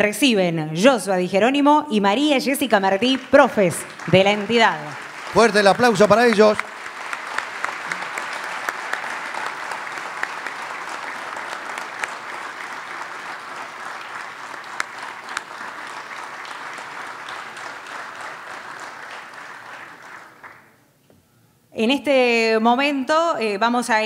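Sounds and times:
audience applauding: 3.0s - 20.8s.

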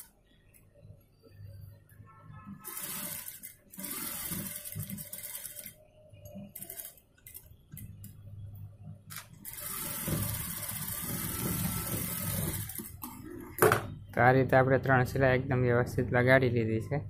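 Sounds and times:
sewing machine stitching: 2.6s - 5.8s, 6.6s - 7.5s, 9.4s - 13.2s.

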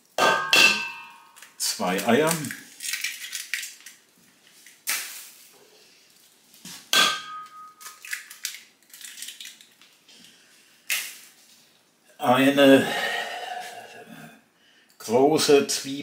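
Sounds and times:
eggs knocking on metal bowl: 0.2s - 1.4s
bowl ringing: 0.3s - 1.4s, 7.2s - 7.8s.

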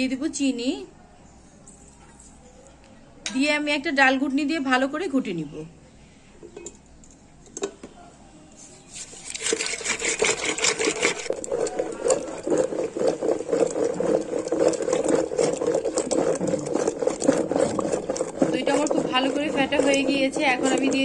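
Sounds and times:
thick liquid sloshing: 8.8s - 21.0s
wood clattering against steel pot: 9.3s - 21.0s.

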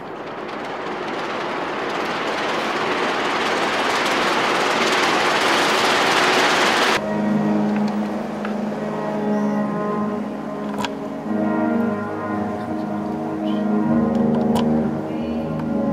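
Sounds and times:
paper cone rattling on loudspeaker: 0.0s - 7.0s.

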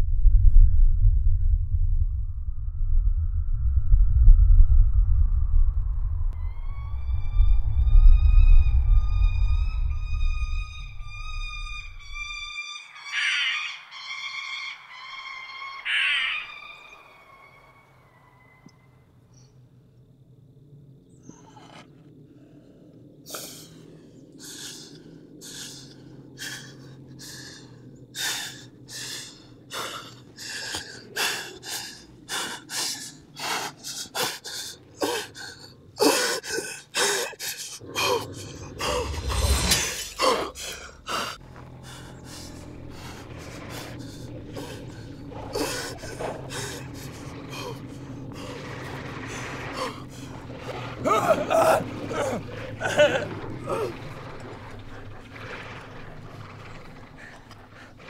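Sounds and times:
low rumble: 0.0s - 12.6s, 37.7s - 58.0s.

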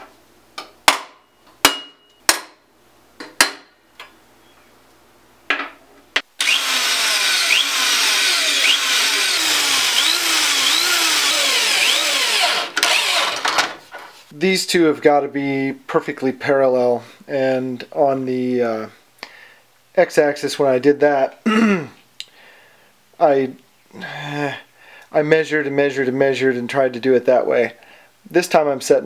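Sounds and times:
electric drill boring into metal: 6.4s - 13.6s.

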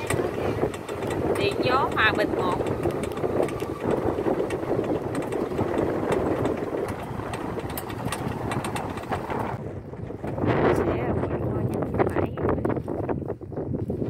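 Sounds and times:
small clicks and rattles: 0.0s - 9.6s
electric cart driving: 0.0s - 12.1s.

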